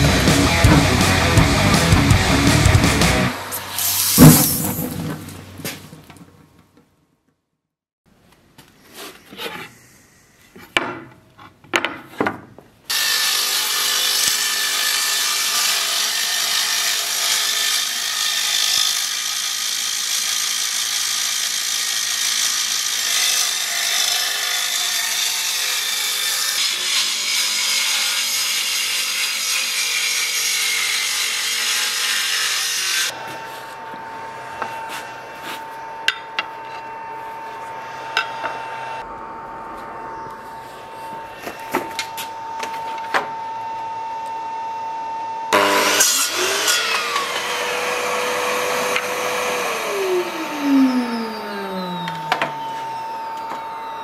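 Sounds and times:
wood planer running: 0.0s - 3.6s, 29.4s - 42.2s, 45.5s - 54.0s.

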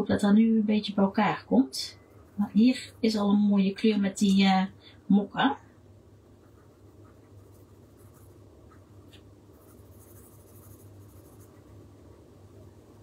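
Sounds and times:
steady low hum: 0.0s - 13.0s
pencil scratching on paper: 6.4s - 11.8s.

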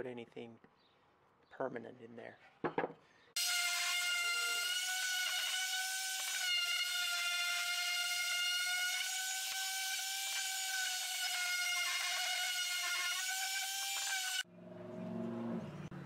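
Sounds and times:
orbital sander whining: 3.4s - 14.4s.

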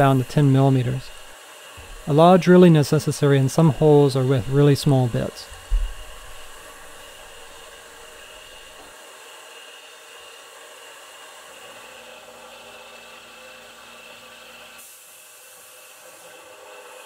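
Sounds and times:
coolant nozzle hissing: 0.0s - 8.9s, 14.8s - 17.0s
high whine of mill spindle: 0.0s - 17.0s.

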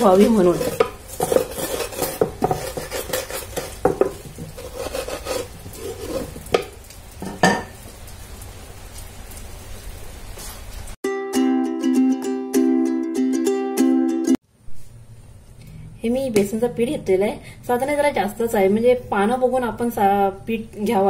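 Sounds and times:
rolling pin rolling on board: 0.2s - 6.7s.

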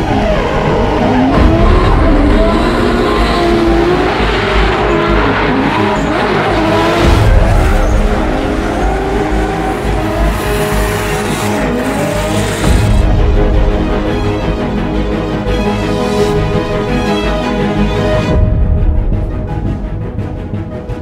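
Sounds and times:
car engine revving: 0.0s - 15.2s.

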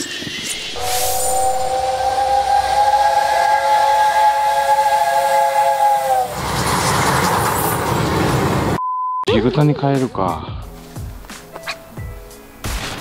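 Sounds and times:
steam hissing: 0.0s - 8.0s
steam locomotive whistle: 0.5s - 7.7s.

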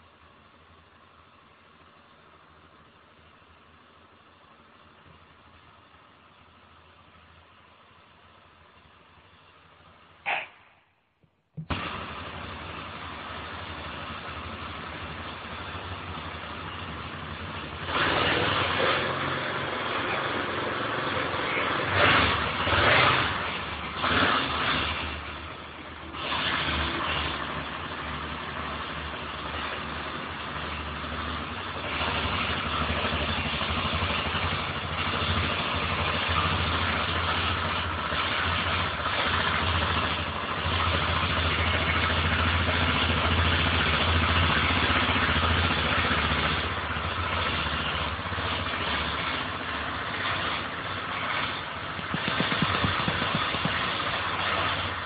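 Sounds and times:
motorcycle engine idling: 11.6s - 18.0s, 27.3s - 55.0s
motorcycle throttle blips: 34.1s - 55.0s.

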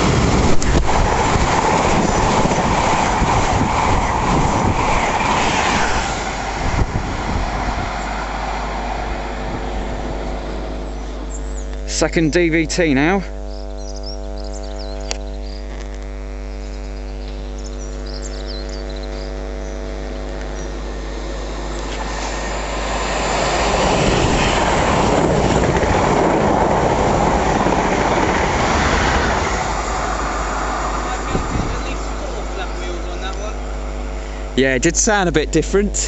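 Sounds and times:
train passing at speed: 0.0s - 11.3s, 20.9s - 35.7s
steady low hum: 0.0s - 36.0s.

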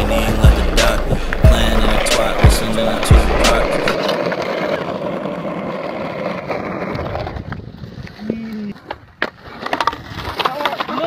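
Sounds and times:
skateboard wheels rolling on concrete: 0.0s - 11.0s.

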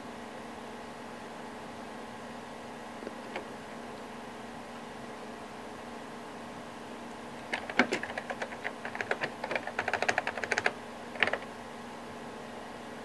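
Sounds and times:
steady background hum: 0.0s - 13.0s
keyboard key clicks: 7.4s - 11.5s.

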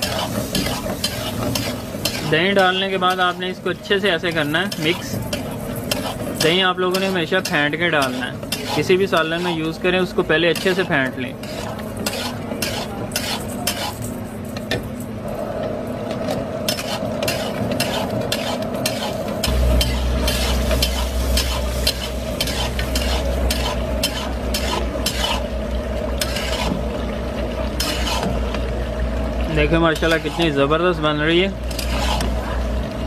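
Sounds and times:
meat sizzling in oil: 0.0s - 14.0s, 16.7s - 30.7s
spatula scraping pan: 0.0s - 14.4s, 16.6s - 27.0s, 27.7s - 28.5s, 29.9s - 30.6s, 31.6s - 32.5s
low rumble: 19.5s - 24.5s.

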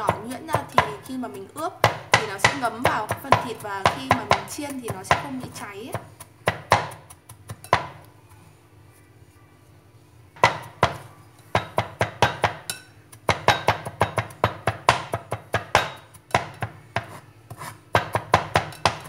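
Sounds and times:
knife chopping on wooden board: 1.8s - 8.0s, 10.4s - 11.0s, 11.6s - 19.0s.

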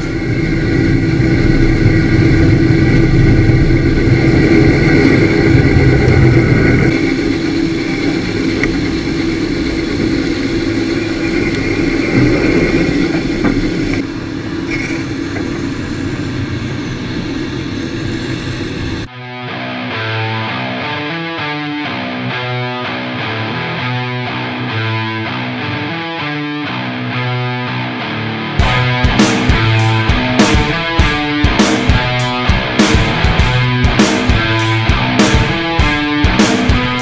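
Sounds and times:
combine harvester humming: 0.0s - 19.1s, 28.6s - 37.0s.

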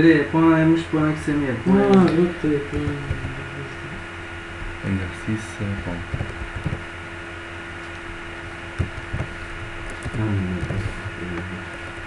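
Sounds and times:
steady electrical hum: 0.0s - 12.0s
keyboard keys clicking: 5.7s - 6.9s, 8.8s - 11.8s.

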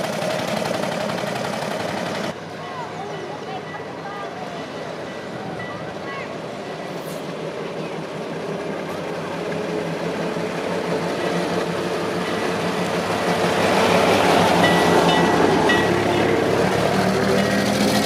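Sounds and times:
fire engine passing: 0.0s - 18.0s
motorcycle approaching: 10.0s - 18.0s.

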